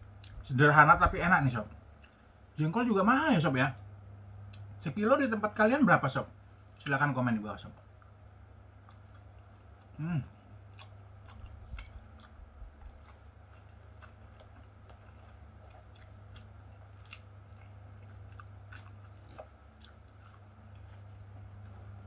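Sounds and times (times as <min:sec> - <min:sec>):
man chewing food: 0:00.0 - 0:02.8, 0:04.4 - 0:04.8, 0:07.5 - 0:22.0
steady low hum: 0:00.0 - 0:22.0
wet mouth clicks and smacks: 0:10.7 - 0:20.5.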